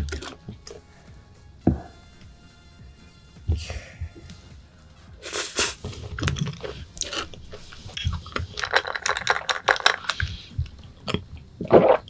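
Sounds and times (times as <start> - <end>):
wet chewing clicks and smacks: 6.0 - 12.0.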